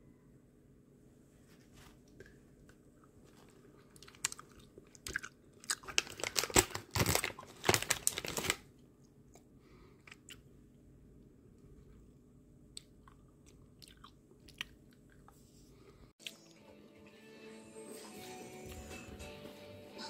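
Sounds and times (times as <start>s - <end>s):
plastic bag crinkling: 3.8s - 8.7s.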